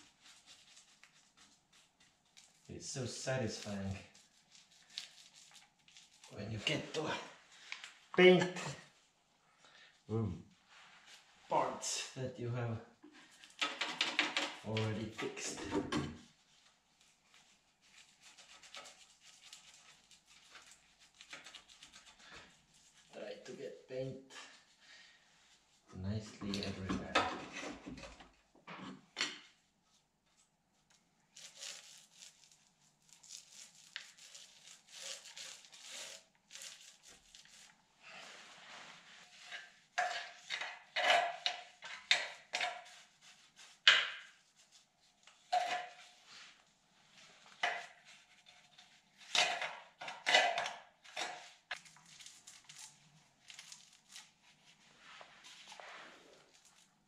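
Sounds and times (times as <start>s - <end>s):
brush scrubbing on steel: 0.0s - 7.0s, 16.2s - 23.2s, 31.4s - 49.4s.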